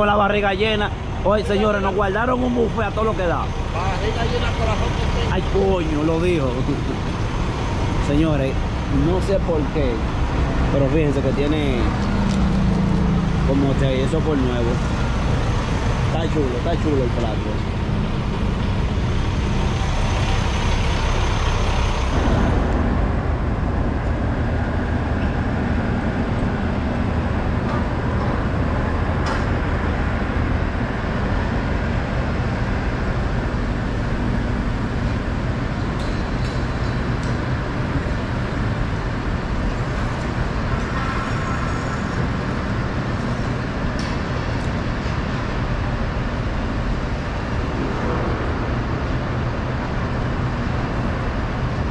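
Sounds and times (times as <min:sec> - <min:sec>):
heavy truck engine running: 0:00.0 - 0:51.9.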